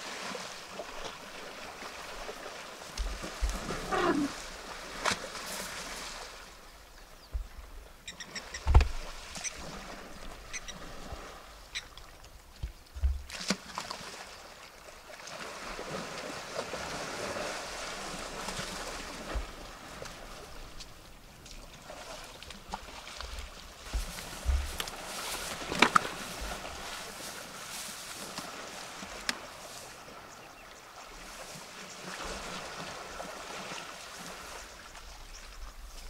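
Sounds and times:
water sloshing and splashing: 0.0 - 36.0
small bird chirping: 8.0 - 8.7.

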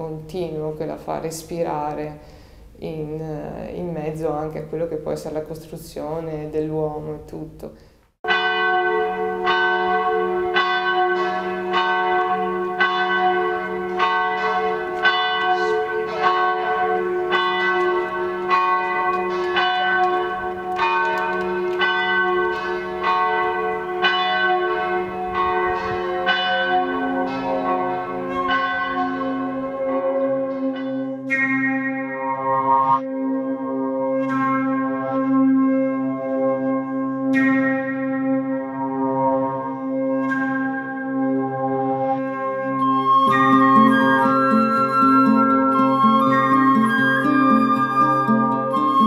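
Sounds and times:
church bells ringing: 8.2 - 49.0.

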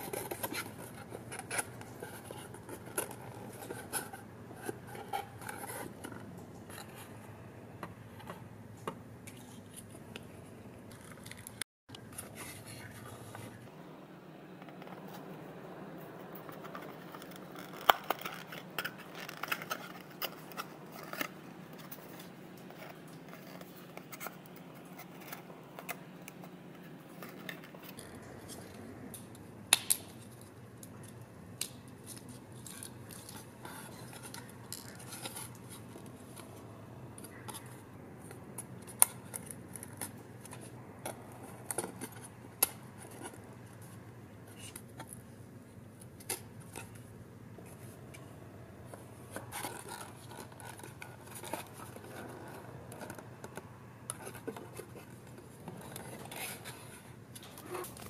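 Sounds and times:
card scraping and rubbing: 0.0 - 7.3, 48.8 - 58.0.

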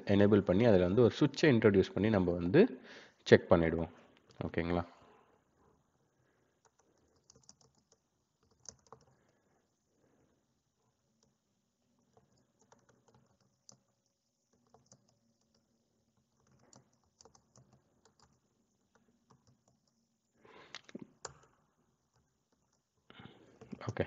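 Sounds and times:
keyboard typing: 6.6 - 9.4, 10.8 - 20.0, 21.0 - 22.9, 23.5 - 24.0.

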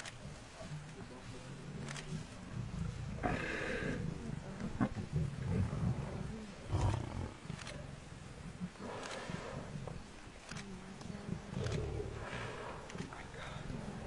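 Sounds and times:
lions growling: 1.7 - 10.6, 11.2 - 14.0.

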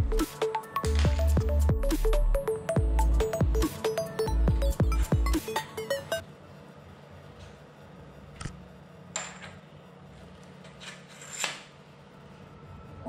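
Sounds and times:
electronic background music: 0.0 - 6.2.

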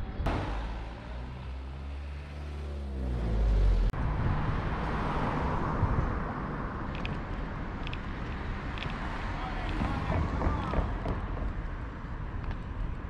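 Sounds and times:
wind and road noise cycling: 0.0 - 13.0
truck engine driving past: 0.2 - 5.4.

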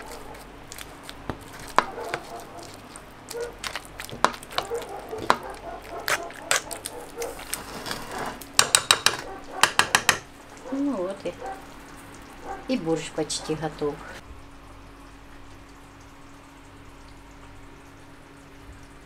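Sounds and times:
utensil scraping frying pan: 0.0 - 10.3
sharp taps on pan: 4.2 - 5.5, 8.6 - 10.3.

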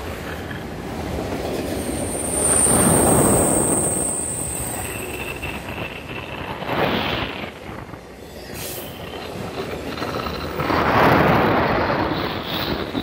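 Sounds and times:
train wheels rumbling on rails: 0.0 - 13.0
high wheel squeal: 1.7 - 5.8.

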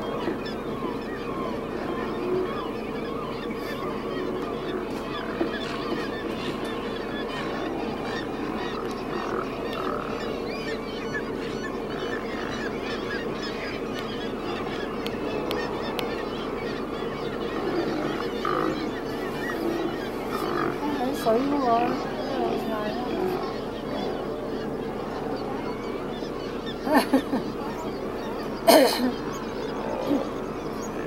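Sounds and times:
sea lions barking: 0.0 - 31.0.

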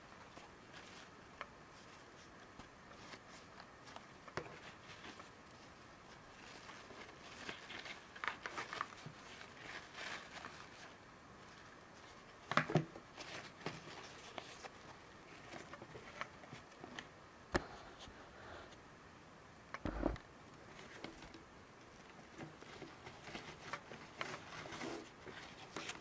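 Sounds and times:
fabric straps rustling: 0.0 - 16.7.

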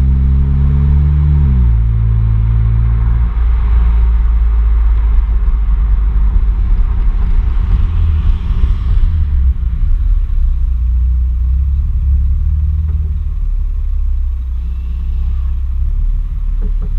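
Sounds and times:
car exhaust rumble: 0.0 - 16.9
exhaust hiss: 13.9 - 16.9.

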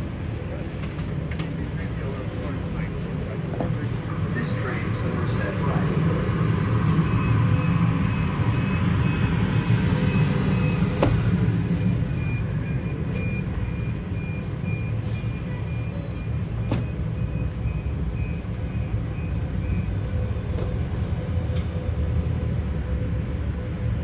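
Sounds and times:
city traffic rumble: 0.0 - 24.0.

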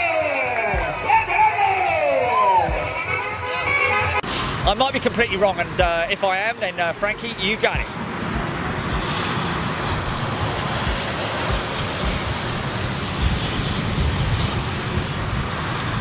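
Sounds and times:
jet engines roaring: 0.0 - 16.0
wind buffeting microphone: 7.2 - 16.0.

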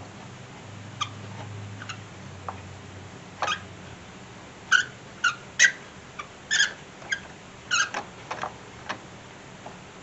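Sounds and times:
socket wrench squeaks and clicks: 3.4 - 3.7, 4.7 - 8.1.

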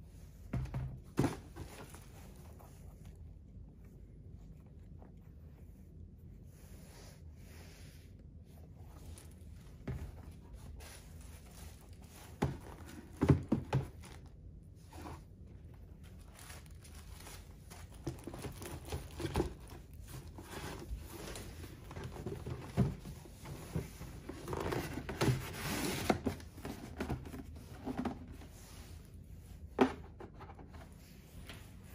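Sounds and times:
paper rustling: 14.9 - 28.3.

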